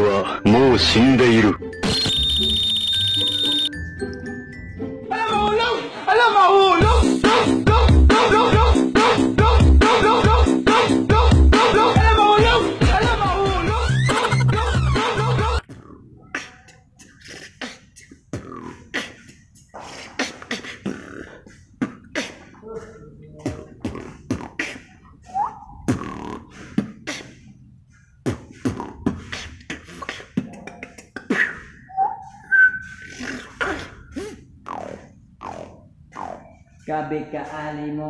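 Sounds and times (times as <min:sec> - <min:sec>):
man beatboxing: 0:06.8 - 0:27.6, 0:28.2 - 0:36.8.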